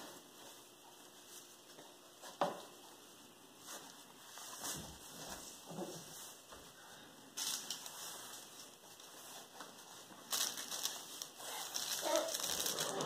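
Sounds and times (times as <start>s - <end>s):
plush toy rustling: 7.4s - 13.0s.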